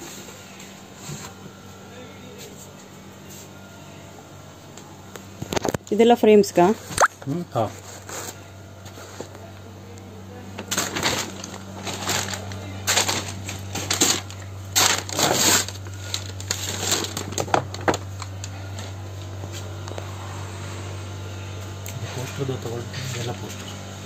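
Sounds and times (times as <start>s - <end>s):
low machine hum: 0.0s - 24.0s
picture frames clattering and rustling: 10.6s - 18.0s.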